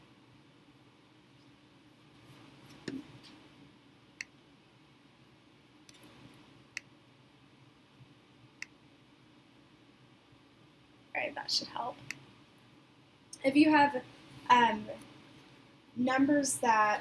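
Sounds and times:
low room hiss: 0.0s - 17.0s
computer mouse clicks: 5.9s - 6.9s.

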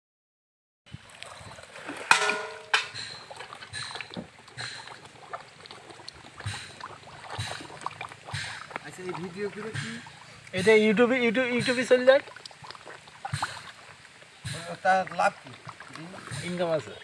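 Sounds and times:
fish splashing at water surface: 1.0s - 17.0s.

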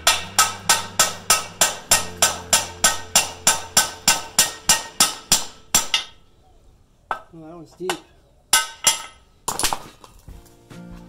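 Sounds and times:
hammer striking steel bar: 0.0s - 6.2s, 7.9s - 9.2s.

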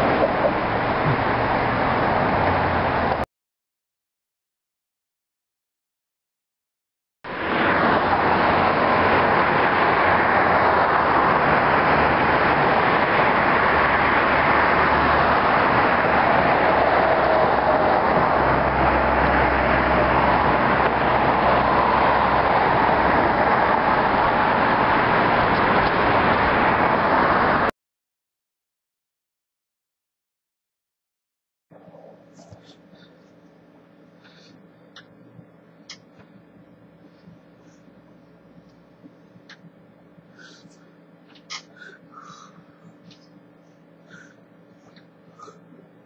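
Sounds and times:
outdoor hiss and rumble: 7.3s - 27.7s, 31.7s - 46.0s.

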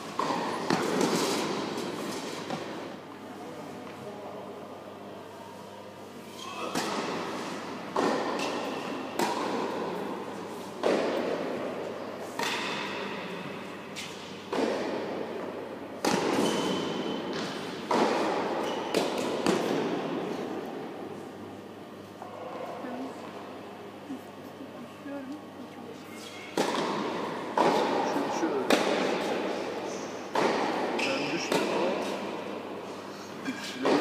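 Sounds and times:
racket hitting tennis ball: 0.0s - 2.9s, 6.7s - 13.2s, 14.0s - 21.1s, 26.5s - 32.7s
tennis ball bouncing: 0.2s - 2.8s, 6.7s - 10.0s, 14.5s - 20.2s, 26.6s - 29.6s, 30.3s - 32.1s.

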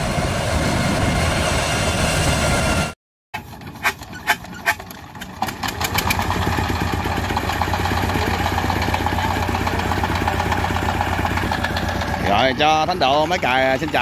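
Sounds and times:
diesel engine chugging: 3.4s - 14.0s.

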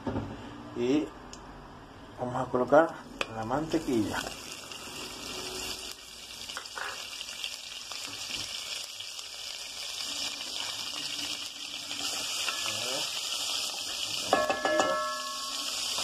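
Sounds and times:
butter sizzling in a pan: 3.2s - 16.0s.

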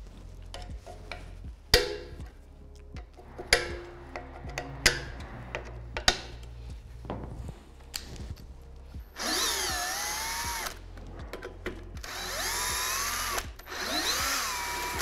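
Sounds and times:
cordless drill motor whining: 9.0s - 10.8s, 12.0s - 15.0s.

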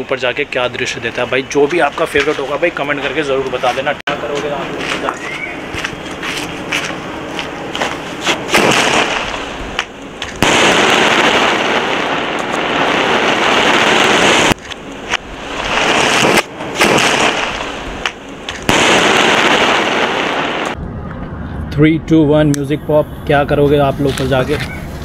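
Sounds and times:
dense firework crackling: 0.0s - 20.9s
firework bangs: 4.9s - 20.9s
firework cracks and pops: 7.8s - 20.8s.

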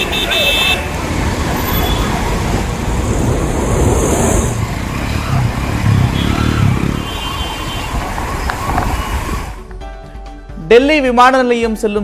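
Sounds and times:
vehicle engines running: 0.0s - 9.6s.

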